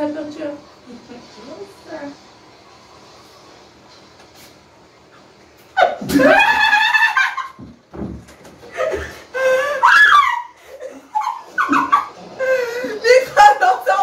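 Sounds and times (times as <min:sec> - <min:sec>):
women laughing loudly: 0:05.8 - 0:07.7, 0:08.6 - 0:13.4.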